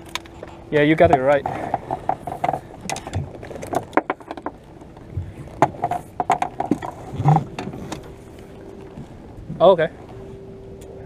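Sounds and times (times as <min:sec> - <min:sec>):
fish and net knocking on hull: 0:00.9 - 0:08.1.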